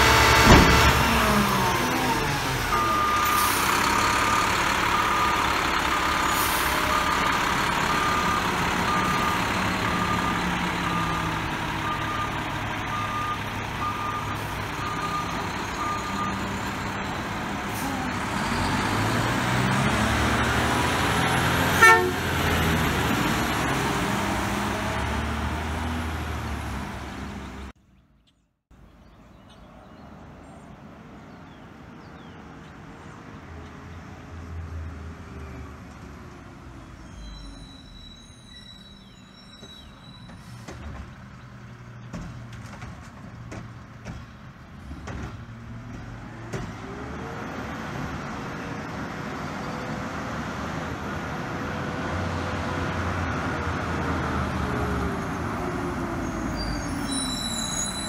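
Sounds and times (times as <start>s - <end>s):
truck horn toot: 0.0s - 1.2s, 21.5s - 22.9s, 56.5s - 58.0s
diesel engine: 0.0s - 27.8s, 31.2s - 58.0s
distant truck: 0.0s - 58.0s
reversing alarm beeping: 2.7s - 7.3s, 7.9s - 16.6s, 37.2s - 40.6s.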